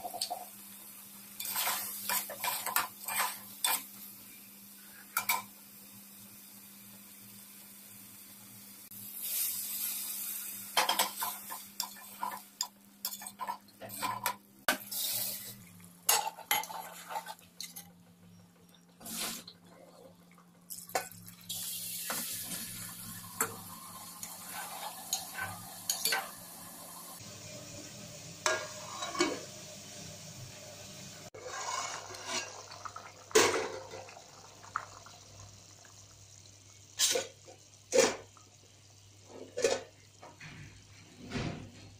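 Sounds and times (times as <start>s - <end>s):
water pouring into pot: 31.3s - 37.4s
metal spoon scraping a pot: 31.4s - 32.6s.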